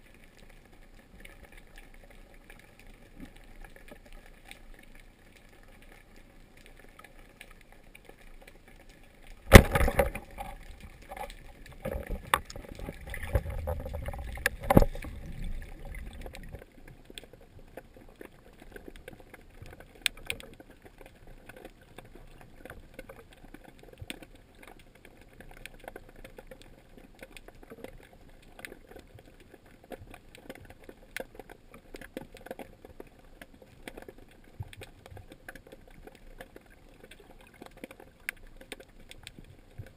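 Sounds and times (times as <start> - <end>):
rushing water: 0.0 - 39.9
small crackles: 0.0 - 39.9
sharp knock underwater: 9.4 - 11.2, 11.8 - 15.2.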